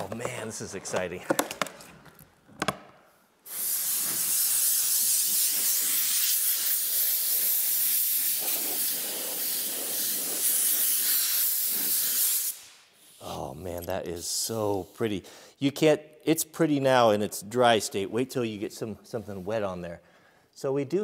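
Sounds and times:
air blow gun hissing: 3.4s - 13.4s.

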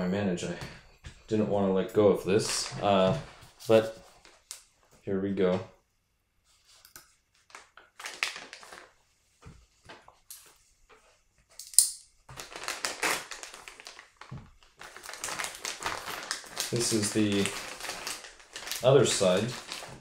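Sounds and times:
plastic bag crinkling: 7.5s - 9.0s, 12.3s - 20.0s.

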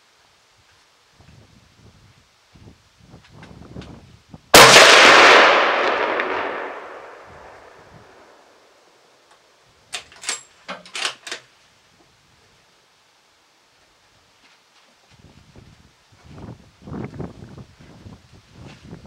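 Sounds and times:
rifle shot echoing: 4.6s - 8.4s.

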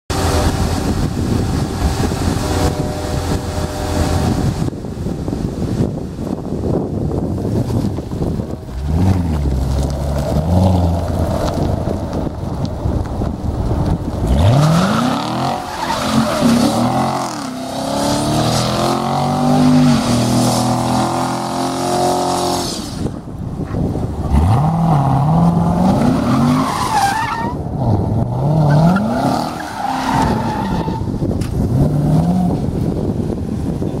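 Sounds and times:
car engine revving hard: 14.2s - 23.1s, 24.2s - 27.0s
tyres squealing: 14.6s - 17.7s.

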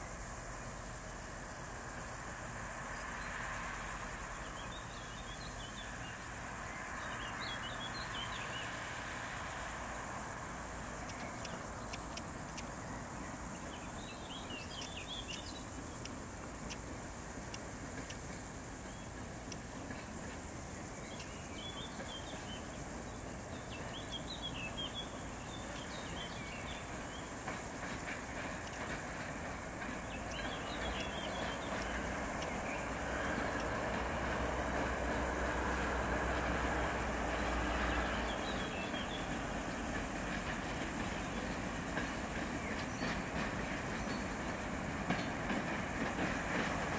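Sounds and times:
crickets buzzing: 0.0s - 46.9s
diesel locomotive rumble: 0.0s - 46.9s
birds chirping: 11.0s - 16.9s.

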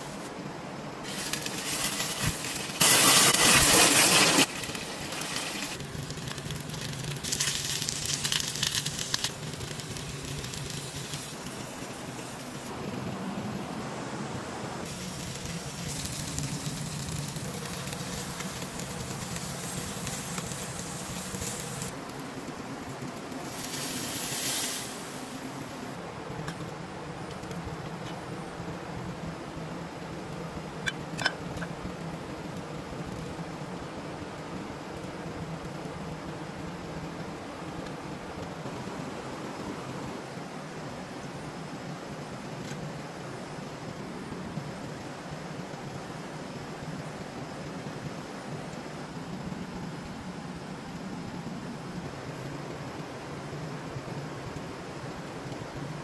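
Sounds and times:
food sizzling in hot oil: 1.0s - 12.7s, 14.8s - 21.9s, 23.4s - 25.8s.

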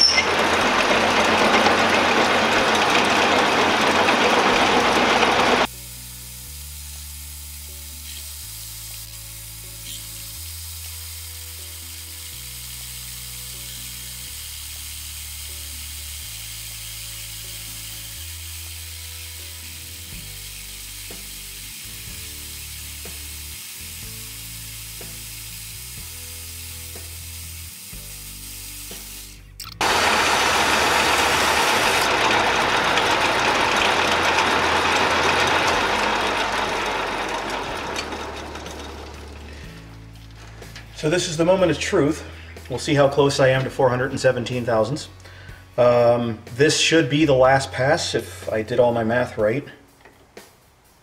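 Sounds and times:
metal lathe cutting: 0.0s - 5.7s, 29.8s - 39.8s
background music with low bass: 5.6s - 29.8s, 39.3s - 51.0s.

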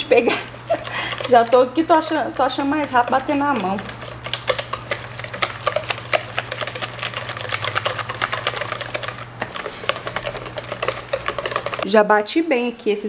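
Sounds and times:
utensil clicking against bowl: 0.8s - 11.9s.

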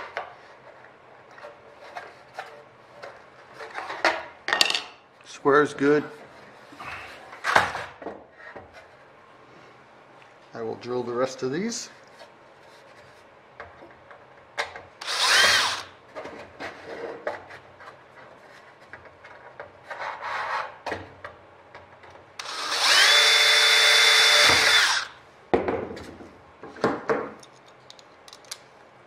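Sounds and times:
drill whining through metal: 15.0s - 15.9s, 22.4s - 25.2s
clicks and knocks of handling: 26.0s - 28.7s.

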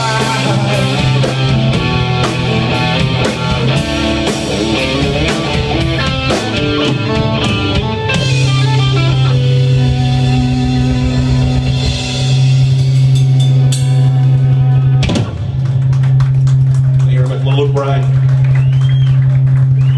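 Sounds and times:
drums and cymbals: 0.0s - 15.7s
electric bass: 0.0s - 19.9s
electric guitar: 0.0s - 19.9s.

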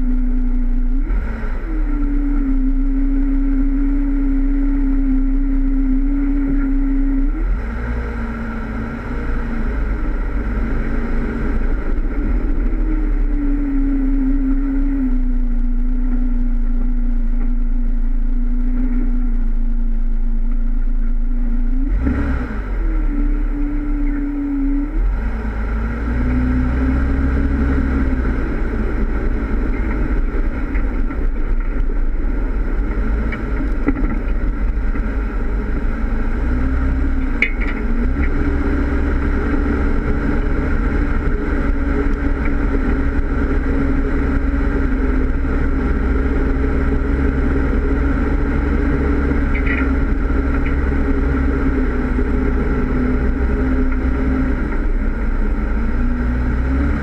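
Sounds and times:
car engine running: 0.0s - 57.0s.

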